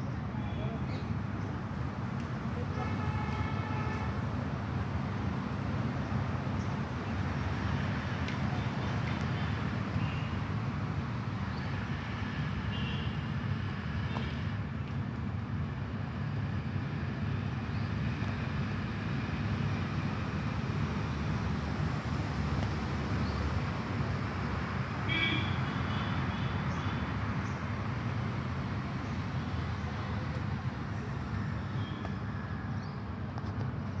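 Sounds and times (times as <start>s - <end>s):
distant road traffic rumble: 0.0s - 34.0s.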